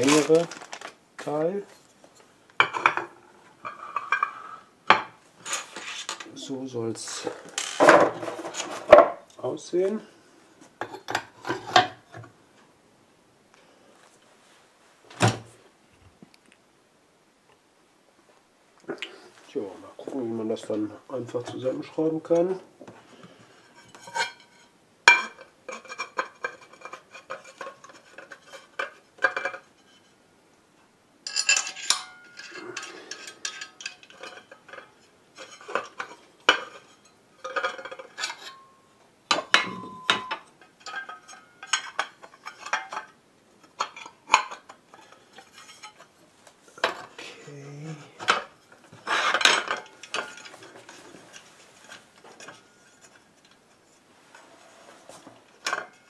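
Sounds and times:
metal parts clinking and knocking: 0.0s - 0.9s, 5.4s - 6.4s, 7.5s - 9.2s, 31.3s - 43.1s, 48.2s - 51.0s.

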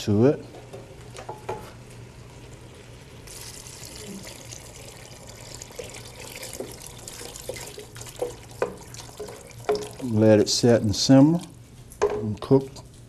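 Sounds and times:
broth pouring into pot: 2.4s - 10.6s.

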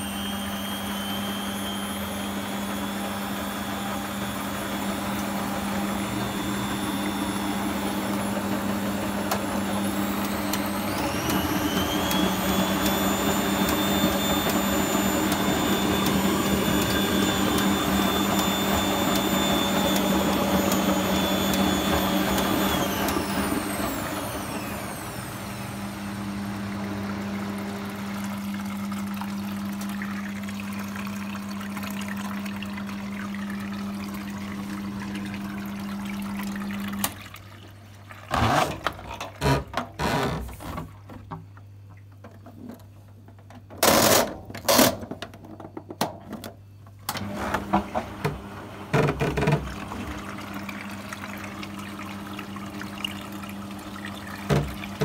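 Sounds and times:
washing machine humming: 0.0s - 55.0s
water sloshing in drum: 49.0s - 55.0s.

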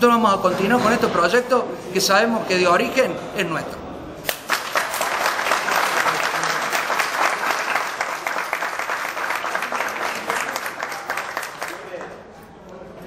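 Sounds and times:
audience applauding: 4.3s - 12.2s.

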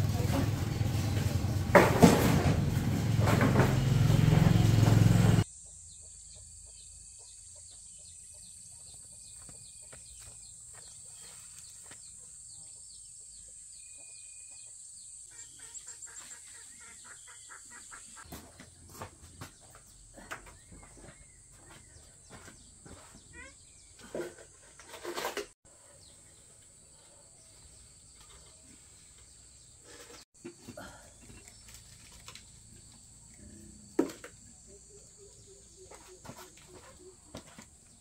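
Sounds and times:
small birds chirping: 5.7s - 24.1s
chickens clucking: 15.3s - 18.4s, 34.6s - 37.6s.

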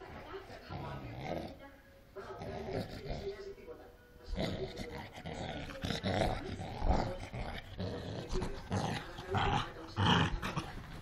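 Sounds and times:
dog growling: 0.7s - 1.6s, 2.4s - 3.4s, 4.3s - 11.0s.

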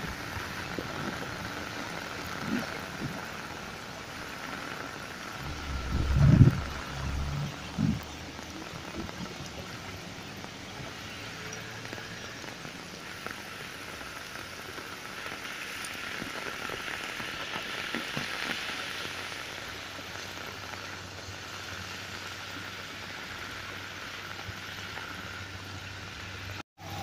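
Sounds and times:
heavy rain on road: 0.0s - 27.0s.

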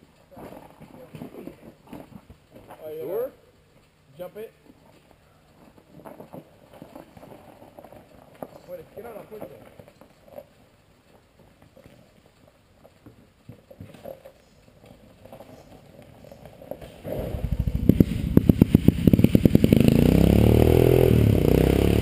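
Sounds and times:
faint clatter: 0.0s - 19.3s
atv engine starting and revving: 16.8s - 22.0s.

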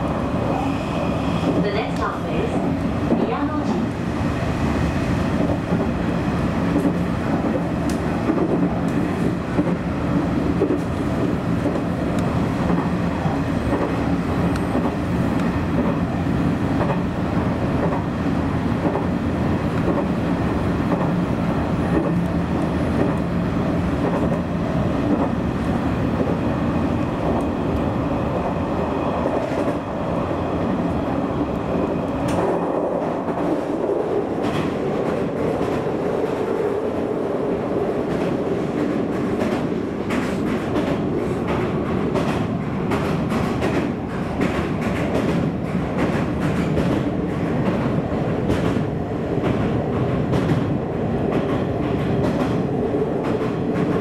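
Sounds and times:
constant train hum: 0.0s - 54.0s
wheels rumbling on rail: 0.0s - 54.0s
sharp rail clicks: 6.7s - 9.0s, 32.2s - 32.7s.

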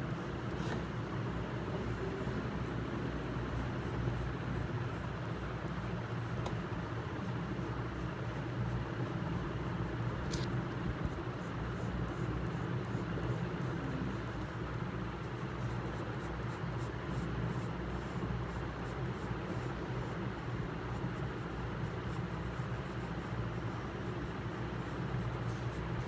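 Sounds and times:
steady background hum: 0.0s - 26.0s
pencil scratching on paper: 7.2s - 26.0s.

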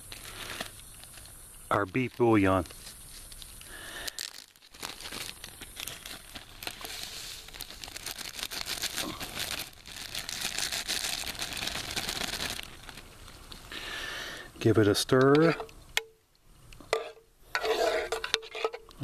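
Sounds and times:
plastic bag crinkling: 0.0s - 13.8s.

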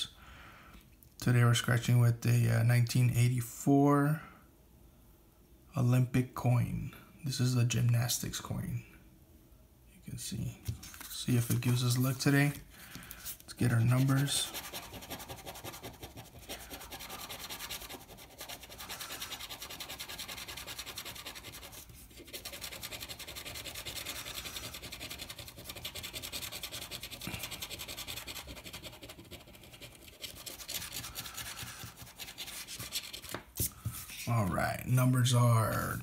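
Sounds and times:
coin scratching lottery ticket: 13.6s - 33.3s.

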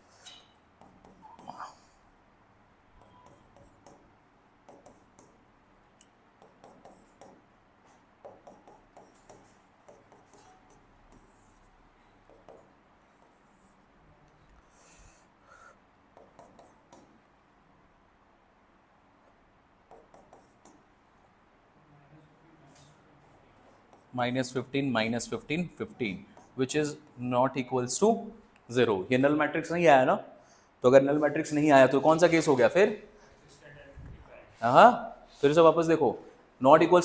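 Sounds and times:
pen scratching while writing: 0.8s - 1.6s, 3.0s - 4.0s, 4.7s - 5.4s, 6.4s - 7.4s, 8.2s - 13.9s, 16.2s - 17.1s, 19.9s - 20.8s.

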